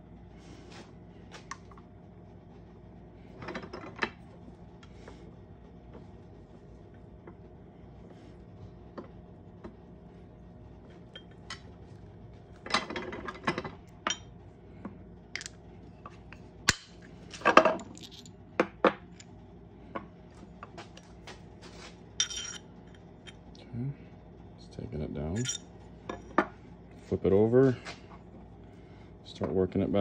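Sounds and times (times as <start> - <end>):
metal tools clinking: 17.8 - 18.3, 22.2 - 22.6, 25.4 - 25.6.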